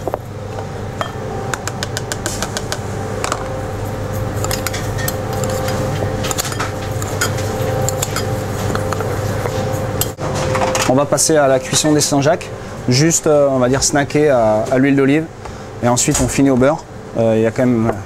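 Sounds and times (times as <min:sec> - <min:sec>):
kitchen ventilation hum: 0:00.0 - 0:18.0
metal spoon scraping porcelain bowl: 0:04.4 - 0:10.2.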